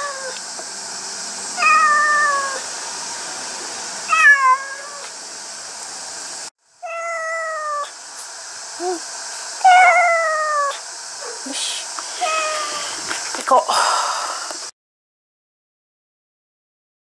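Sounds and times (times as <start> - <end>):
cat meowing: 0.0 - 0.4, 1.6 - 2.6, 4.1 - 5.1, 6.8 - 7.9, 9.6 - 10.8, 12.2 - 12.9.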